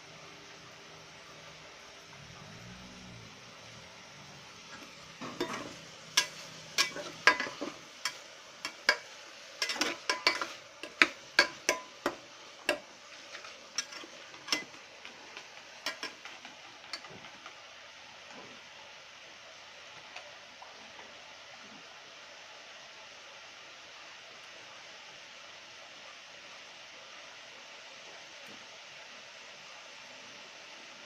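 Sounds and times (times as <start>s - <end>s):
metal spatula scraping pot: 4.7s - 14.8s.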